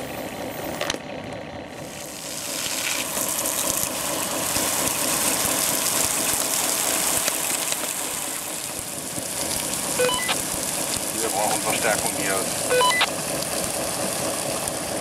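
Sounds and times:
engine running: 0.0s - 15.0s
water spray hissing: 1.8s - 14.9s
short beeps: 10.0s - 10.4s, 12.7s - 13.1s.

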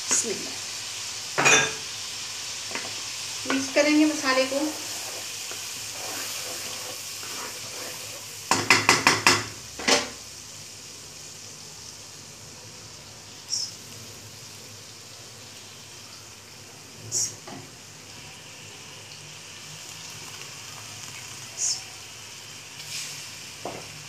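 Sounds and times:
spices sizzling in a wok: 0.0s - 24.0s
spatula knocking on wok: 8.5s - 9.6s.

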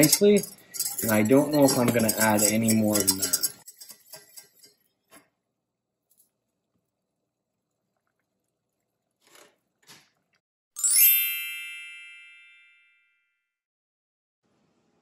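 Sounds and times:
sparkling bell-like chime: 10.8s - 13.4s.

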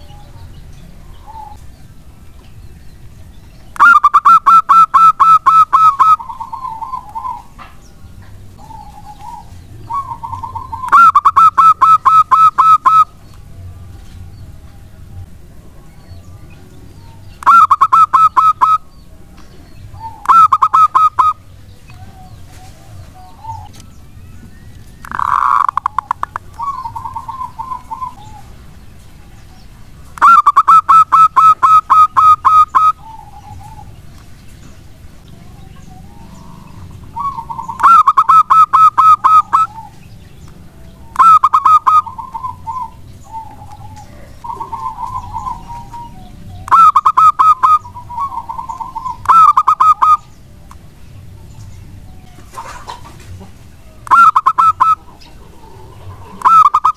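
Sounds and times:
dove cooing: 0.0s - 1.8s, 3.7s - 7.7s, 8.6s - 13.2s, 17.1s - 18.9s, 19.6s - 23.8s, 25.0s - 28.8s, 30.1s - 40.2s, 41.0s - 50.3s, 52.4s - 56.9s.

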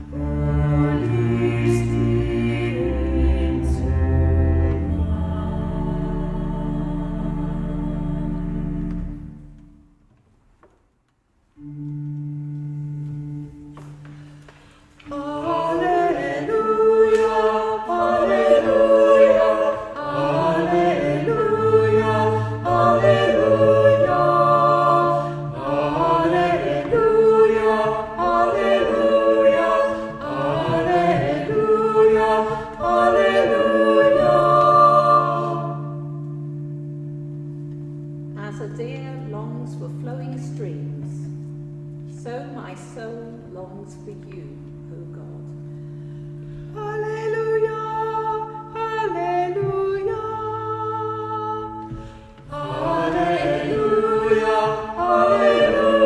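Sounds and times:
choir singing: 0.0s - 9.5s, 15.0s - 36.3s, 46.8s - 56.0s
organ held chord: 11.6s - 42.8s, 51.8s - 56.0s.

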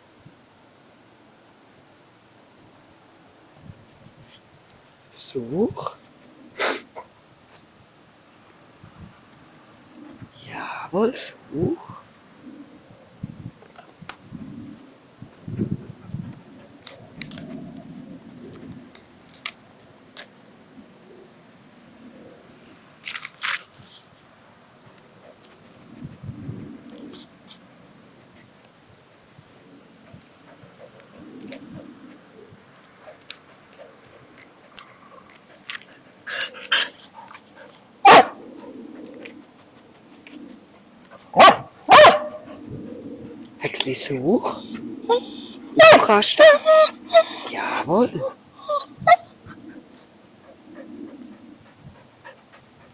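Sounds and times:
paws scrabbling on bark: 30.1s - 37.9s, 38.6s - 42.3s
dog barking: 38.0s - 38.4s, 41.4s - 42.5s, 45.8s - 47.4s
dog yelping: 38.0s - 38.4s, 41.4s - 42.5s, 44.6s - 49.4s.

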